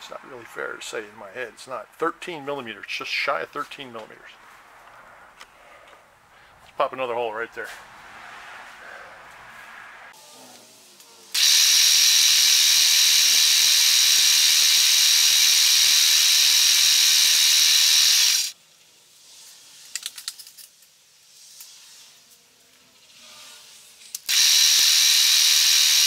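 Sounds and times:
milling machine cutting metal: 11.4 - 18.5, 24.3 - 26.0.

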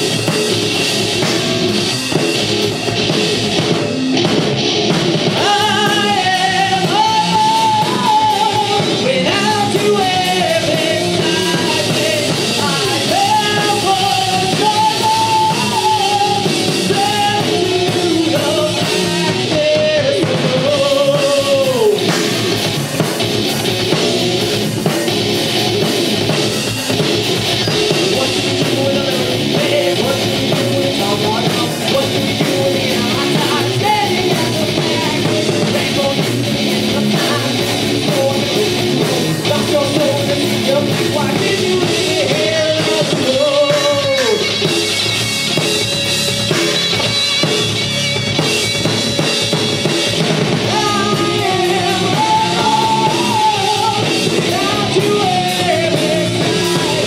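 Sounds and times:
heavy rock band playing: 0.0 - 57.0
person singing: 5.3 - 23.0, 27.6 - 44.9, 50.6 - 57.0.

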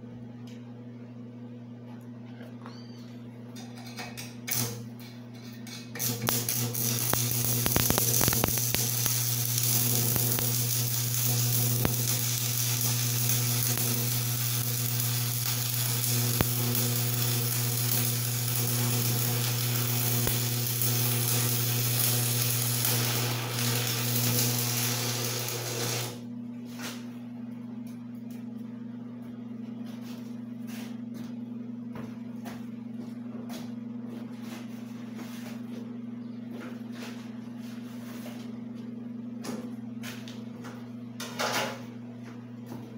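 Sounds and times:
welding machine humming: 4.2 - 27.0
welding arc crackling: 6.0 - 26.2.

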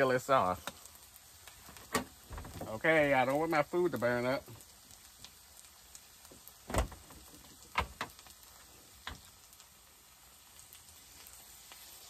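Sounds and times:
faint sizzle of frying: 0.0 - 12.0.

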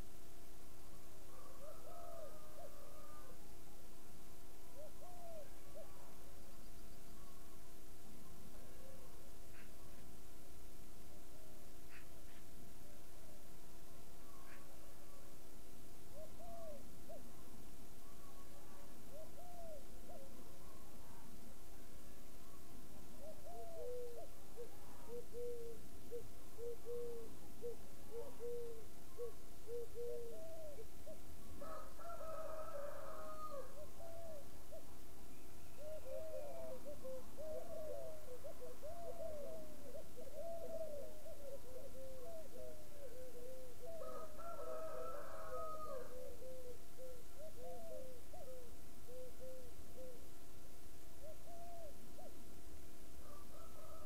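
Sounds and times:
animals calling in mellow notes: 4.7 - 10.2, 11.4 - 15.5, 16.1 - 50.4, 51.1 - 52.6
dove cooing: 4.8 - 6.1, 16.1 - 17.3, 18.0 - 20.9, 23.2 - 34.9, 35.7 - 50.3, 51.2 - 52.4, 53.2 - 54.0
higher dove coo: 4.8 - 6.1, 16.1 - 17.4, 18.1 - 20.9, 23.2 - 34.9, 35.7 - 50.3, 51.2 - 52.4.

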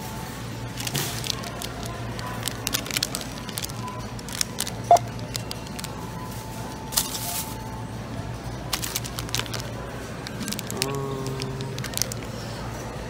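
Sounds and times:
plastic bags rustling: 0.6 - 7.8, 8.7 - 12.8
items being handled: 0.7 - 7.8, 8.7 - 12.5
scanner beep: 4.9 - 5.1.

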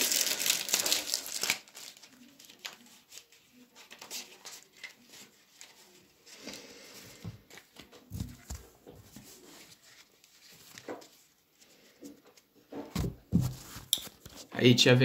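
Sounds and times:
packaging rustling: 0.0 - 3.2.

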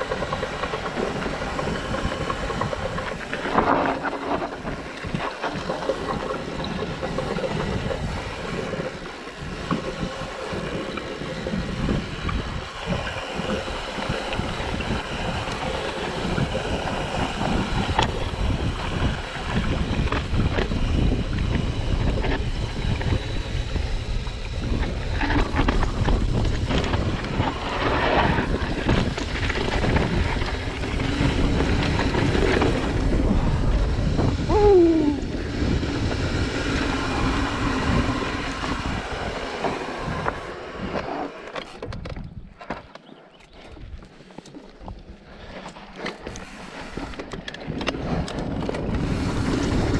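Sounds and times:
bike rattling and knocking: 0.0 - 34.6, 41.0 - 43.2
wind buffeting microphone: 0.0 - 42.6, 46.2 - 49.9.

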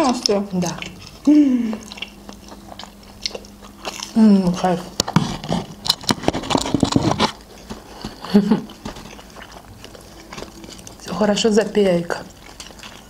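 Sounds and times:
chewing crunchy food: 0.0 - 13.0
person humming: 1.3 - 1.9.

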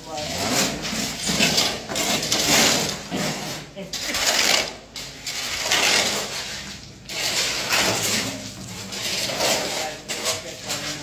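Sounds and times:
metal blade scraping wet concrete: 0.1 - 11.0.

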